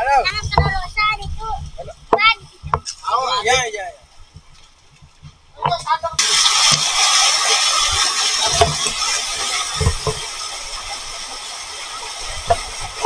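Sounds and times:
low thumps: 0:00.0 - 0:11.0
waterfall rushing: 0:06.1 - 0:13.0.

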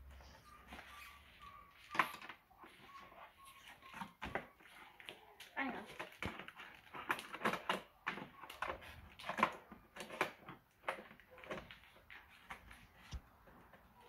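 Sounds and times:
plastic toy and packaging clicking: 0:03.6 - 0:13.8.

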